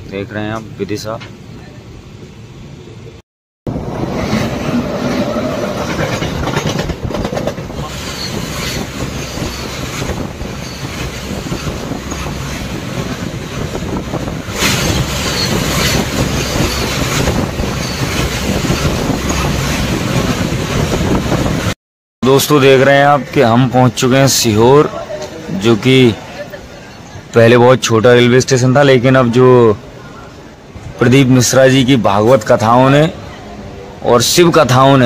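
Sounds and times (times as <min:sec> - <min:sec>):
train wheels rushing on rail: 0:00.2 - 0:21.8.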